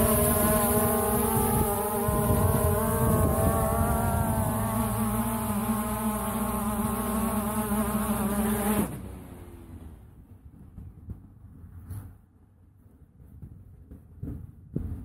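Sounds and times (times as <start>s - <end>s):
drone propellers buzzing: 0.0s - 9.8s.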